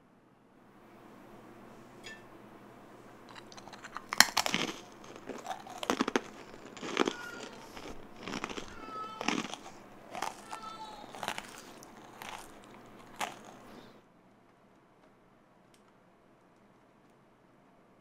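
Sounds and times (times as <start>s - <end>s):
crunchy snack being bitten: 3.3s - 14.0s.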